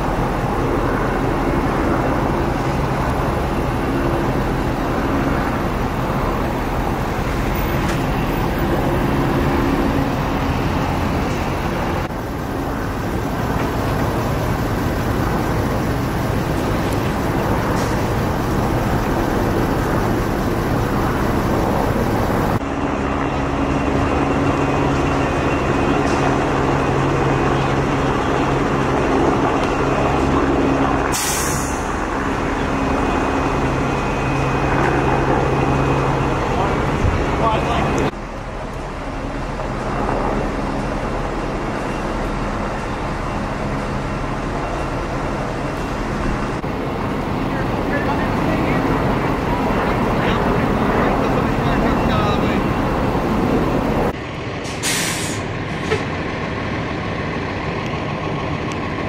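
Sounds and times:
diesel truck engine running: 0:00.0 - 0:59.0
air brakes hissing: 0:17.7 - 0:18.3, 0:31.1 - 0:32.0, 0:54.6 - 0:56.0.

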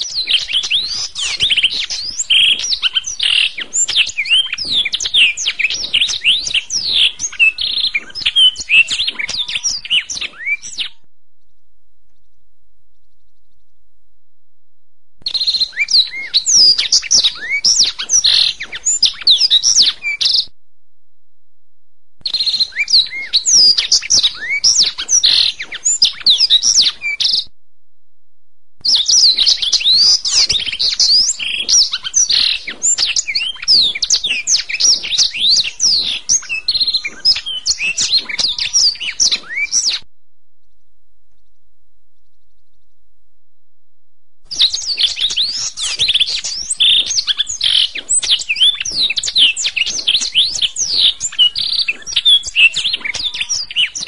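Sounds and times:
canary singing: 0:00.0 - 0:11.5, 0:15.2 - 0:20.5, 0:22.2 - 0:27.5, 0:28.8 - 0:40.0, 0:44.5 - 0:54.0.

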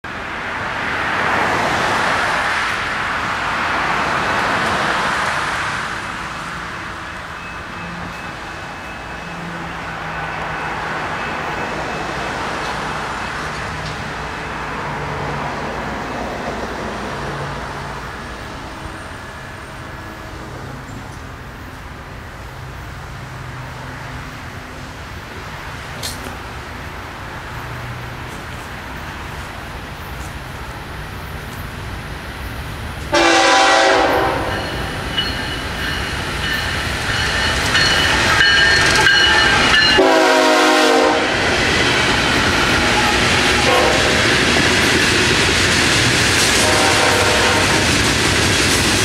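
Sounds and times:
cars passing: 0:00.1 - 0:49.0
sharp click: 0:26.0 - 0:26.4.

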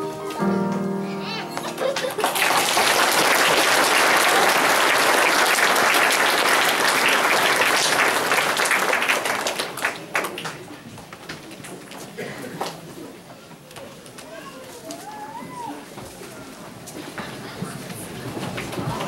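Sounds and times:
audience applauding: 0:01.5 - 0:10.8.

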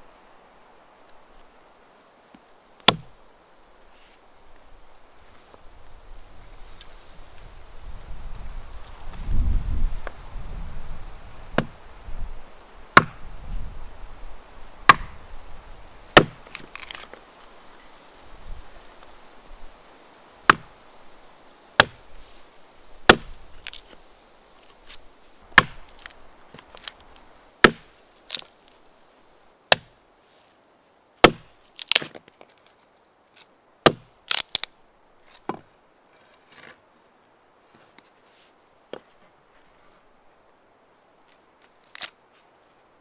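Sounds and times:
axe chopping wood: 0:02.8 - 0:03.1, 0:11.6 - 0:11.8, 0:12.9 - 0:13.2, 0:14.8 - 0:15.2, 0:16.1 - 0:16.9, 0:20.5 - 0:20.8, 0:21.8 - 0:22.0, 0:23.1 - 0:23.8, 0:25.5 - 0:26.7, 0:27.6 - 0:28.4, 0:29.7 - 0:30.0, 0:31.2 - 0:32.2, 0:33.8 - 0:34.7
wood splintering cracks: 0:31.2 - 0:32.2, 0:33.9 - 0:34.7.

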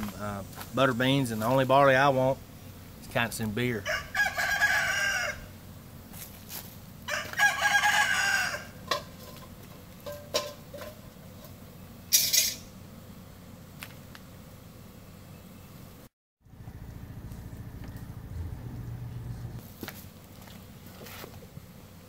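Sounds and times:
rooster crowing: 0:03.8 - 0:05.6, 0:07.0 - 0:09.1
sharp knocks and clatter: 0:08.9 - 0:11.0.

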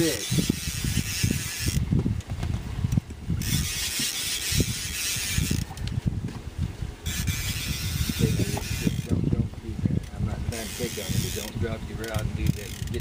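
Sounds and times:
fishing reel drag hissing: 0:00.0 - 0:01.8, 0:03.4 - 0:05.8, 0:07.0 - 0:09.1, 0:10.5 - 0:13.0
wind buffeting microphone: 0:00.0 - 0:13.0.

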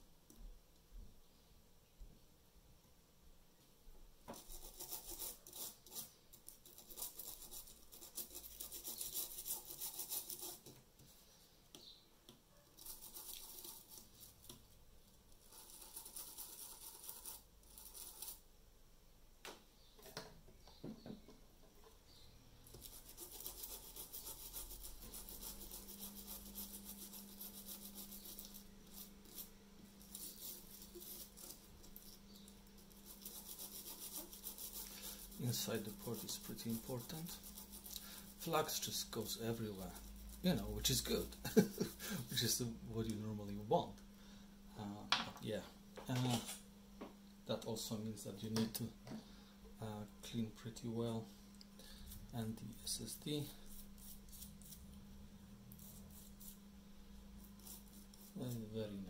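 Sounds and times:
faint steady hum: 0:00.0 - 0:59.0
rubbing strokes on circuit board: 0:04.4 - 0:10.7, 0:12.8 - 0:14.5, 0:15.4 - 0:18.4, 0:22.7 - 0:42.6, 0:52.0 - 0:54.9, 0:55.8 - 0:56.6, 0:57.4 - 0:59.0.

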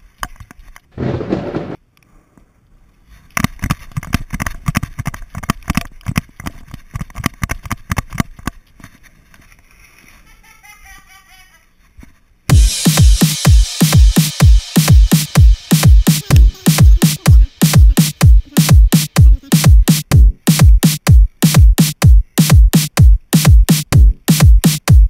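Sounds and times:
footsteps on wooden stairs: 0:01.0 - 0:01.8
sliding glass door rolling: 0:01.0 - 0:01.8
loud electronic dance music: 0:12.5 - 0:25.0.

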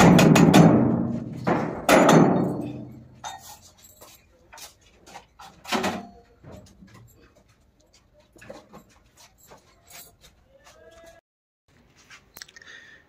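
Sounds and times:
heavy metal clang ringing: 0:00.0 - 0:03.3
metal knocks and clatter: 0:00.0 - 0:10.2.

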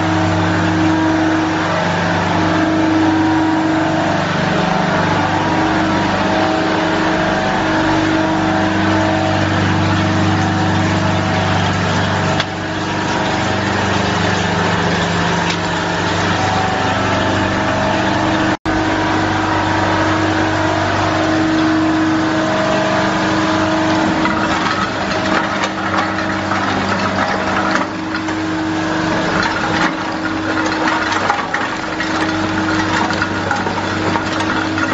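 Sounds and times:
ice machine humming and whining: 0:00.0 - 0:34.9
ice tubes clattering onto pile: 0:23.8 - 0:34.9.

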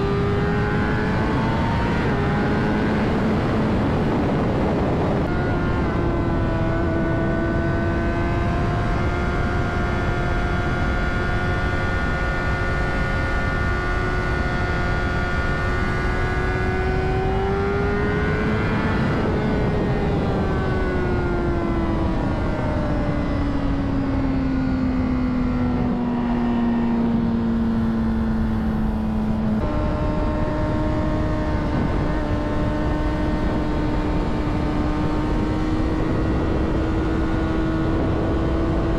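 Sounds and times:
motorcycle engine running at speed: 0:00.0 - 0:38.9
wind rush: 0:00.0 - 0:38.9.

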